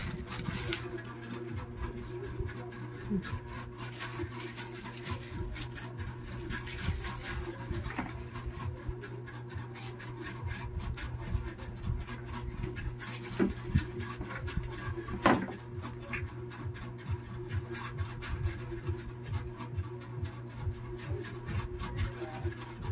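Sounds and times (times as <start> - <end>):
plastic bag rustling: 0.0 - 2.2, 3.0 - 8.6
steady low hum: 0.0 - 22.9.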